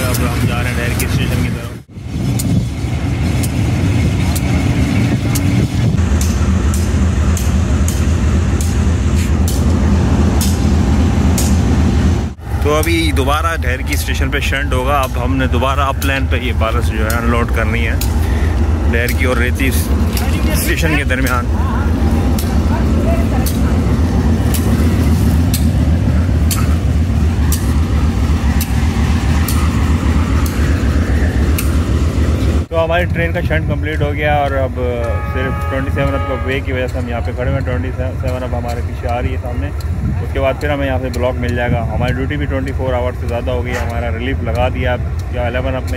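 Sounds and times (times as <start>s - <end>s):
diesel locomotive engine rumbling: 0.0s - 45.9s
sharp ticks: 12.8s - 21.5s, 23.4s - 31.9s, 34.4s - 45.9s.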